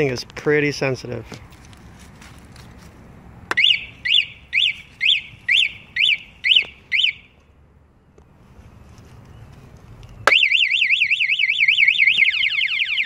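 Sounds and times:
motorcycle alarm chirps: 3.5 - 7.3, 10.2 - 13.0.

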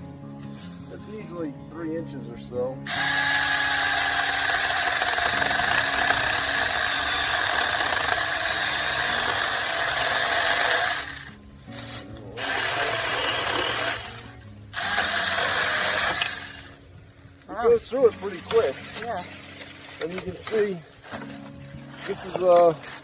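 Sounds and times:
electric chainsaw cutting wood: 2.9 - 16.9.

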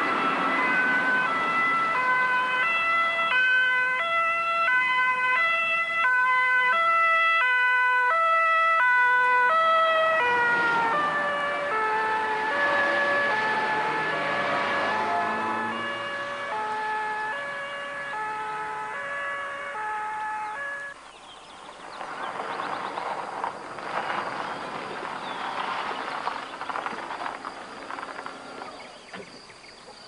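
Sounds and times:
ambulance two-tone siren: 0.0 - 21.0.

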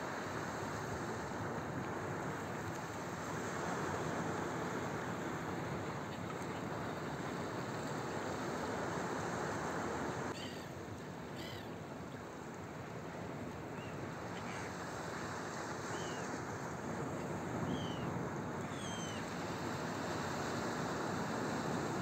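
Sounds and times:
rough sea: 0.0 - 22.0
wind: 0.0 - 22.0
gulls calling: 10.3 - 11.8, 17.6 - 19.3.

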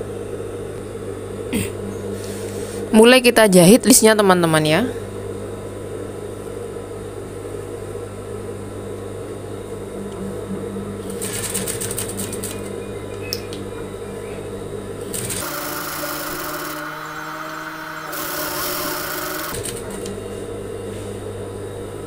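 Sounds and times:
sewing machine motor hum: 9.3 - 21.5
rapid needle stitching: 11.1 - 12.7, 15.1 - 20.1.

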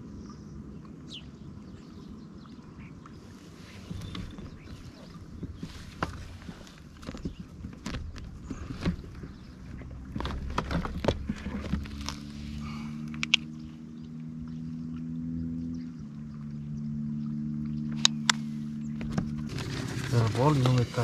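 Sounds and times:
low hum of held tones: 0.0 - 21.0
fishing gear clicks and knocks: 3.8 - 13.5.

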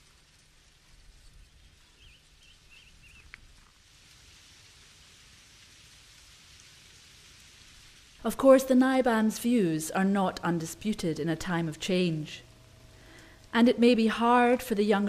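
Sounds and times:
dry brush burning: 0.0 - 8.3.

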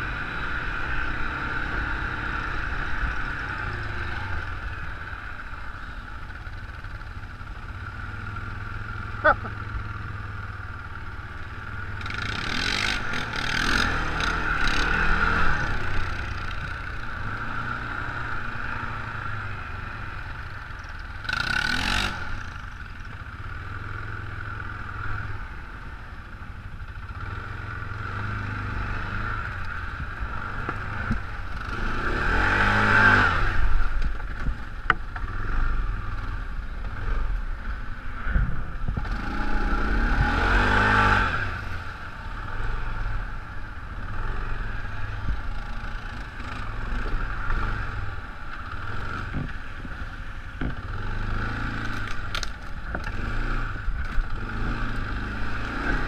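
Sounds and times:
quad bike engine revving: 0.0 - 5.0, 6.5 - 25.6, 27.0 - 43.4, 44.0 - 56.0.

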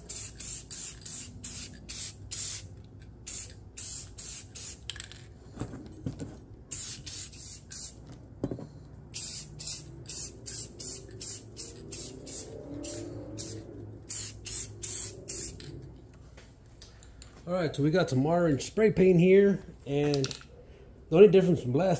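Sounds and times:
spray paint can hissing: 0.0 - 5.0, 6.7 - 8.0, 9.1 - 15.7.

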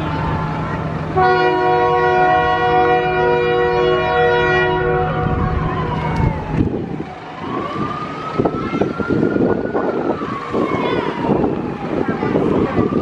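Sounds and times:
siren wailing: 0.0 - 13.0
locomotive air horn: 1.1 - 5.9
rumbling noise: 4.8 - 13.0.

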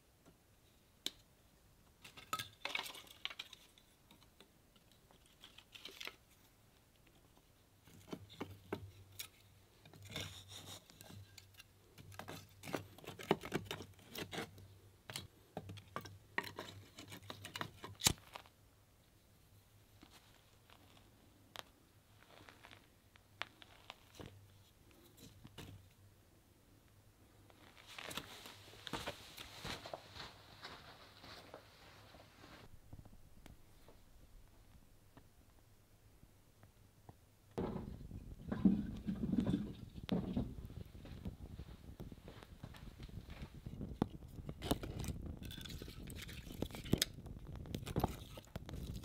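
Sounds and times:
objects clicking and knocking: 2.0 - 6.3, 43.6 - 49.0
rustling: 2.0 - 26.0, 27.2 - 35.7, 37.5 - 49.0.

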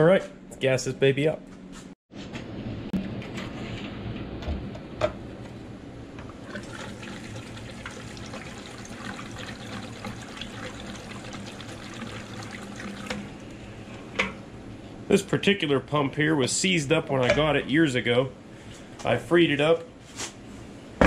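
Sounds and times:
gasoline trickling through a funnel: 6.4 - 13.6.

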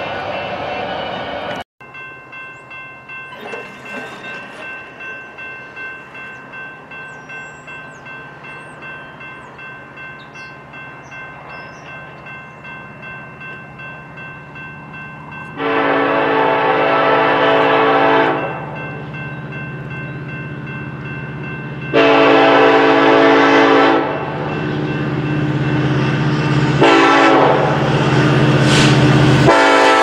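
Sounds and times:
bell ringing: 1.8 - 15.8, 18.3 - 22.2
locomotive horn chord: 15.4 - 18.8, 21.9 - 24.6, 25.9 - 28.4, 29.3 - 30.0.

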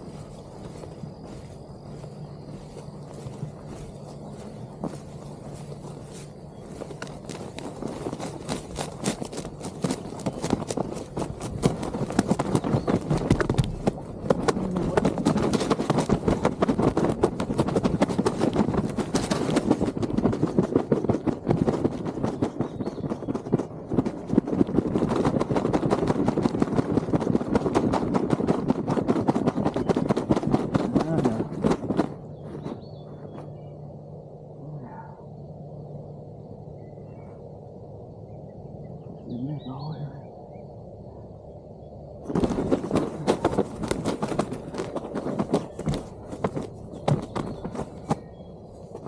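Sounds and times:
footsteps crunching dry leaves: 0.0 - 12.9
rustling and crunching: 0.0 - 33.8, 42.2 - 49.0.

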